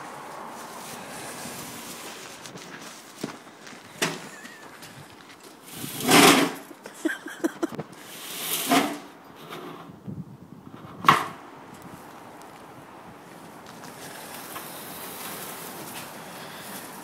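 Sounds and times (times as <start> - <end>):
branches scraping against metal funnel: 5.4 - 6.7, 8.0 - 9.9.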